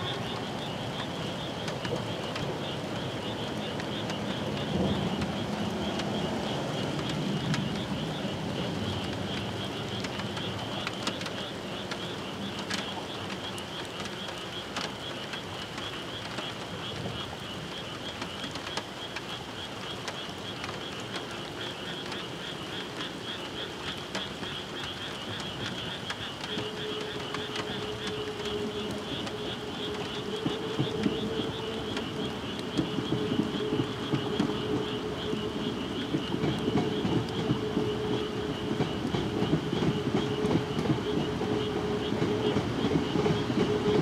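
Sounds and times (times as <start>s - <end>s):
insects or frogs trilling: 0.0s - 44.0s
approaching train hum: 27.7s - 44.0s.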